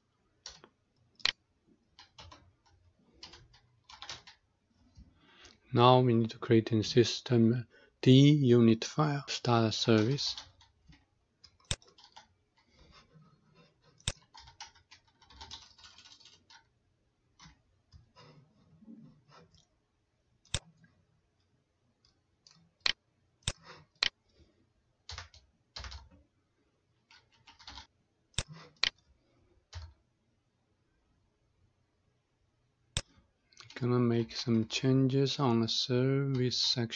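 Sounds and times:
keyboard typing: 0.4 - 4.4, 9.8 - 16.7, 17.3 - 18.4, 25.0 - 26.2, 27.0 - 29.1, 29.7 - 30.0.

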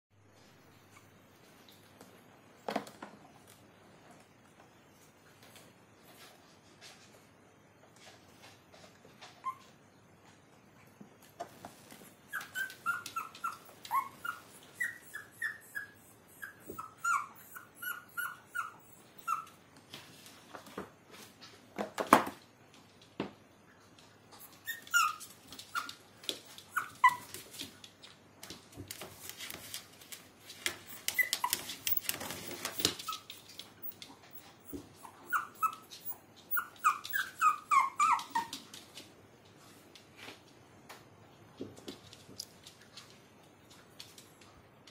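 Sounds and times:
puppies crying high-pitched: 12.3 - 19.5, 24.4 - 25.9, 30.9 - 38.6
puppies scuffling on plastic: 24.6 - 40.6.

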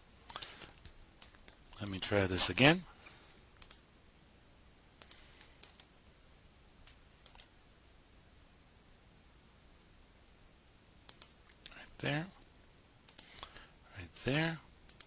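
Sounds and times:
faint computer mouse clicks: 3.6 - 3.8, 5.0 - 5.9, 6.8 - 7.6, 11.1 - 11.8, 13.0 - 13.5.

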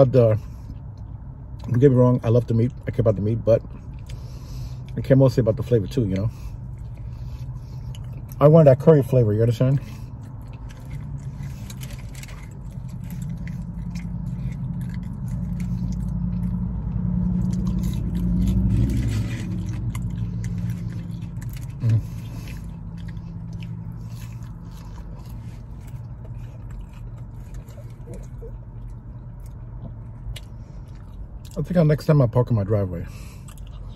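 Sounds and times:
vehicle engine rumbling: 0.0 - 33.9
person chewing: 6.2 - 8.4, 9.7 - 31.6, 33.1 - 33.9.

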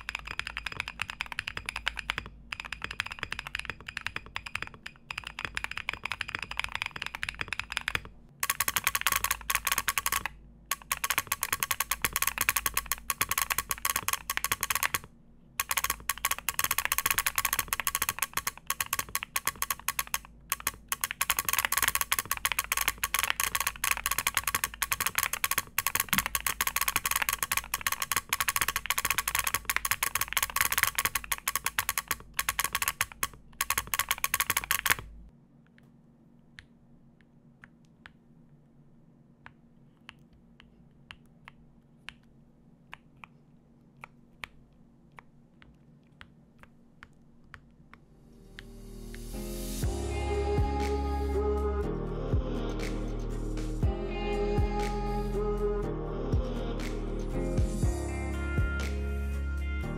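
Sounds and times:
fast typing on mechanical keyboard: 0.0 - 35.1.

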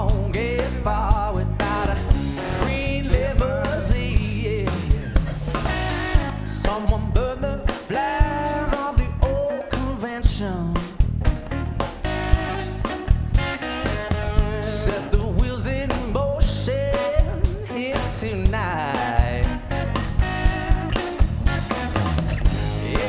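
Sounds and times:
drum kit beat: 0.0 - 23.0
electric bass: 0.0 - 23.0
electric guitar: 0.0 - 23.0.

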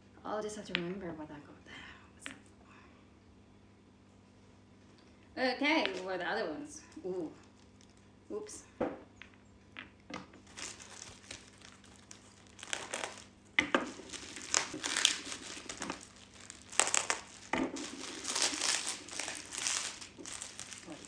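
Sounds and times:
plastic wrap crinkling: 7.4 - 8.1, 10.4 - 21.0.

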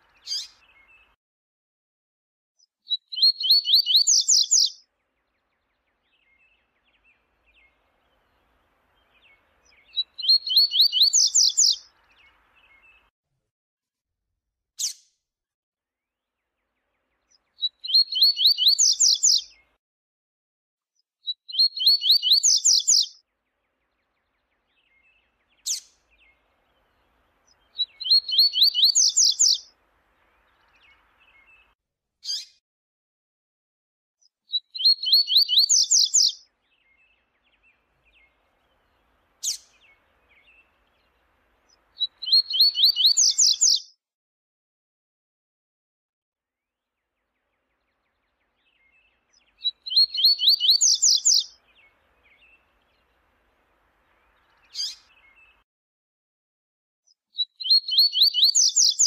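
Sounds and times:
bird singing high sharp notes: 2.9 - 4.8, 9.1 - 12.9, 21.5 - 23.2, 27.5 - 29.7, 34.6 - 37.2, 42.0 - 43.9, 48.0 - 52.7, 57.4 - 59.0.

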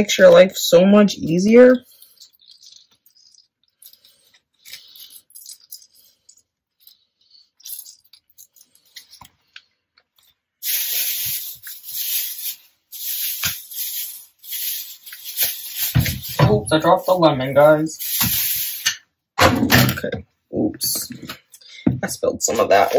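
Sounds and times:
lemon squeezer squeaks and rustles: 1.2 - 9.6, 10.2 - 18.9
plastic bag crinkling: 10.2 - 18.9.

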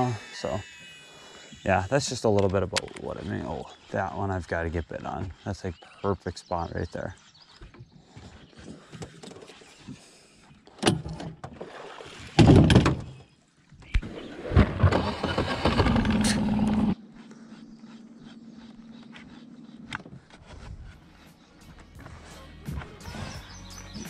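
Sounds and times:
electric motor humming: 0.0 - 5.7, 14.8 - 21.4.

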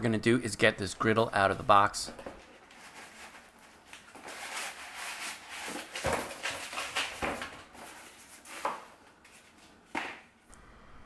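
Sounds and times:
cardboard rustling and scraping: 2.1 - 10.1.

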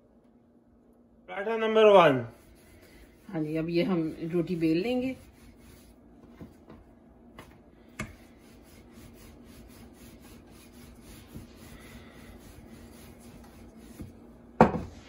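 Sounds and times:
rolling pin rubbing on dough: 2.3 - 6.8, 7.9 - 15.0.

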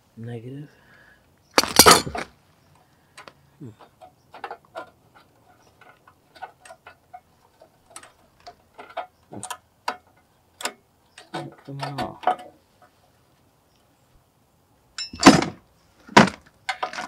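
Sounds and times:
scraping clatter: 1.6 - 2.3.

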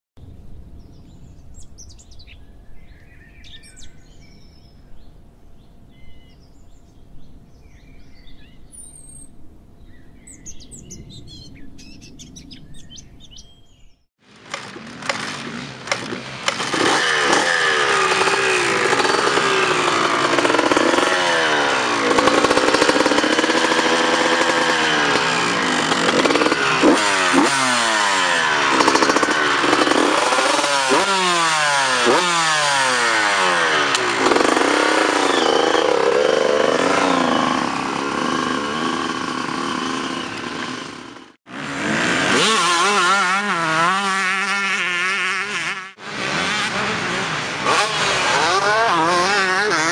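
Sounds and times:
two-stroke motorcycle engines revving: 14.2 - 49.9.

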